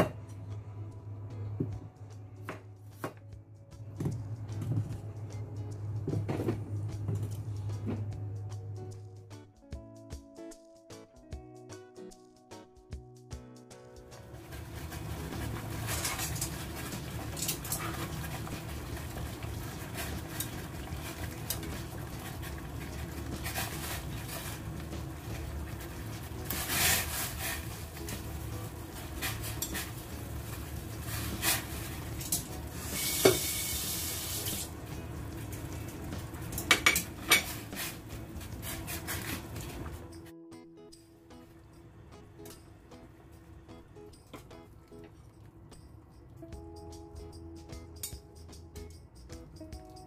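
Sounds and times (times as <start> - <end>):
water boiling in a pot: 14.2 - 40.2
metal tongs clinking on pot: 29.1 - 30.1, 31.2 - 32.6, 36.4 - 38.0.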